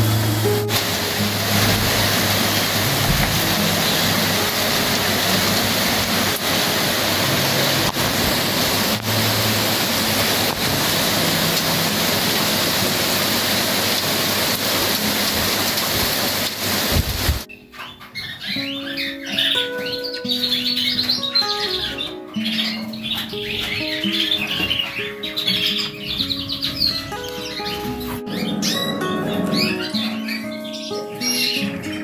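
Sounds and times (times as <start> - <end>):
heavy rain on pavement: 0.0 - 17.5.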